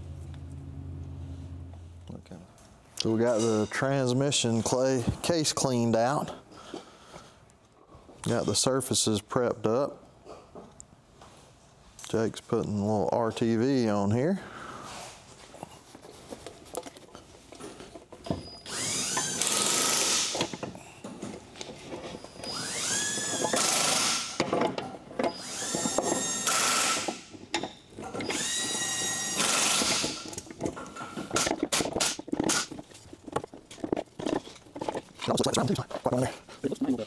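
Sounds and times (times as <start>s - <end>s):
tools clattering on metal: 3.2s - 4.2s
power drill whining: 18.6s - 20.6s, 22.4s - 24.4s, 25.3s - 27.4s, 28.0s - 30.4s.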